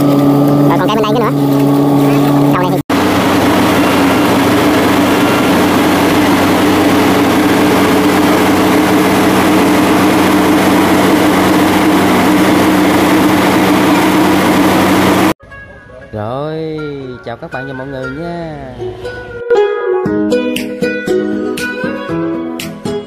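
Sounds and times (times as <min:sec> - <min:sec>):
diesel engine running: 0:00.0 - 0:15.4.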